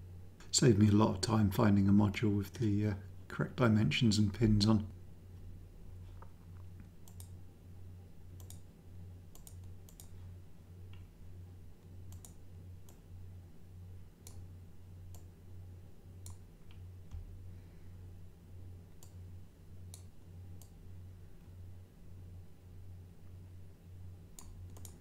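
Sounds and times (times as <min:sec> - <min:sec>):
faint low hum: 0:00.0 - 0:25.0
computer mouse clicking: 0:06.8 - 0:07.4, 0:08.4 - 0:08.7, 0:09.3 - 0:10.2, 0:12.1 - 0:13.0, 0:14.2 - 0:14.5, 0:15.1 - 0:15.3, 0:16.2 - 0:17.2, 0:19.0 - 0:19.2, 0:19.9 - 0:20.8, 0:24.4 - 0:25.0.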